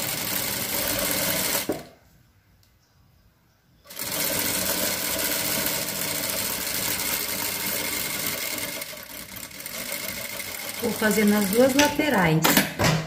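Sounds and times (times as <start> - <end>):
sewing machine stitching: 0.0 - 1.9, 3.9 - 12.2.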